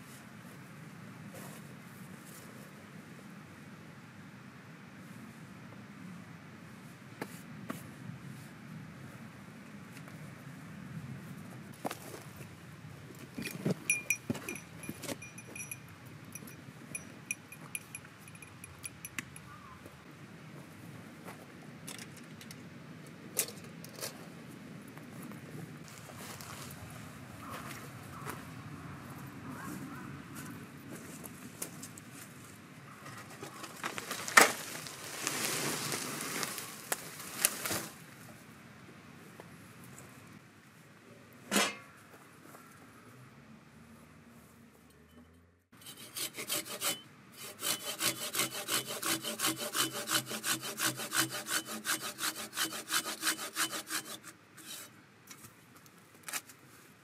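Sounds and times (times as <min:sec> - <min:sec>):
metal fittings jingling: 0:13.4 - 0:19.5
log dragged over forest litter: 0:25.8 - 0:27.1, 0:31.0 - 0:38.4.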